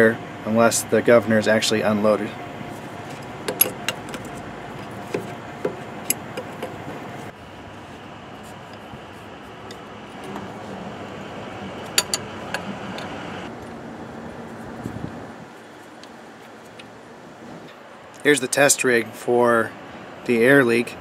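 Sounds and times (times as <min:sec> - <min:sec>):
steady background noise: 0:00.0 - 0:21.0
tools tapping brass fittings: 0:03.1 - 0:06.8, 0:11.8 - 0:13.1.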